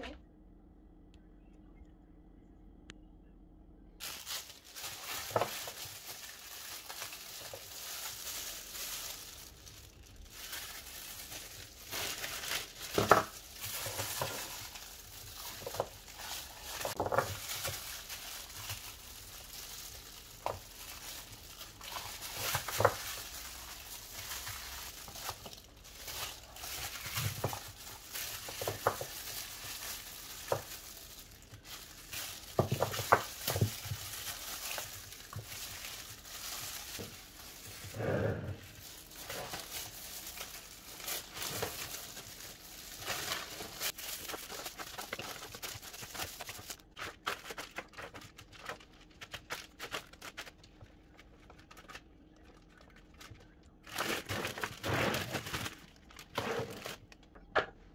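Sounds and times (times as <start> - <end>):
frozen pieces knocking onto tray: 4.0 - 9.6, 10.3 - 37.6
crinkling of gloves and silicone: 4.0 - 57.9.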